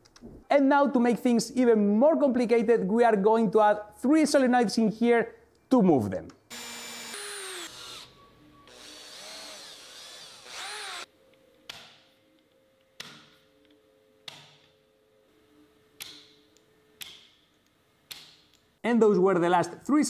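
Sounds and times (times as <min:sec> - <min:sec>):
cordless drill motor whine: 0:06.5 - 0:08.1, 0:08.7 - 0:11.1.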